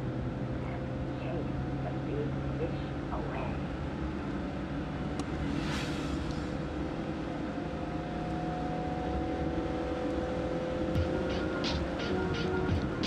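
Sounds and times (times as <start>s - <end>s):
car engine from inside cabin: 0.0s - 13.0s
road noise: 0.0s - 13.0s
brief hiss: 5.4s - 6.6s.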